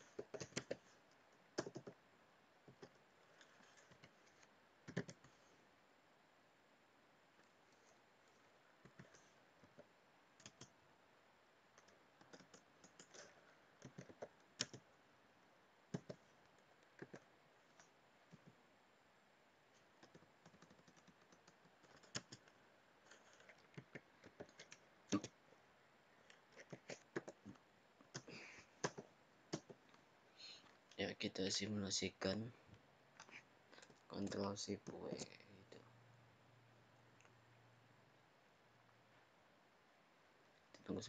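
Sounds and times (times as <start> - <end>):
typing on a keyboard: 0.0 - 0.9, 1.6 - 2.0, 2.6 - 5.4, 8.8 - 10.8, 11.8 - 14.9, 15.9 - 18.6, 20.0 - 25.3, 26.5 - 29.9.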